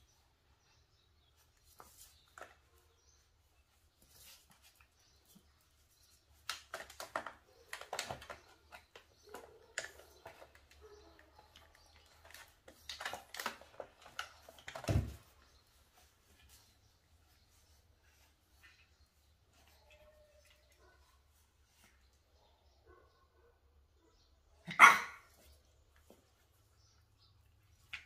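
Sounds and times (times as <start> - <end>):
puppy claws clicking on wooden floor: 6.4 - 15.2.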